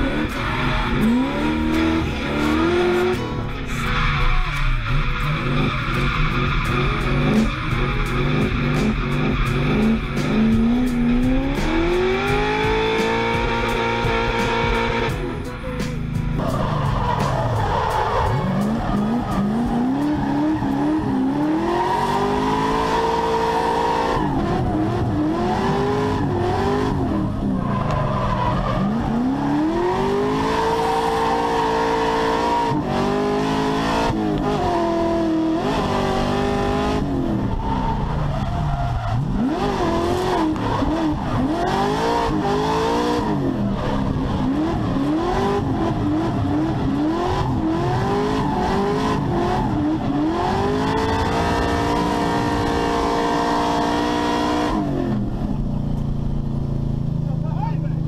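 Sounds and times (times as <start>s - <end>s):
car engine revving: 0.0s - 58.0s
tyres squealing: 16.4s - 26.8s.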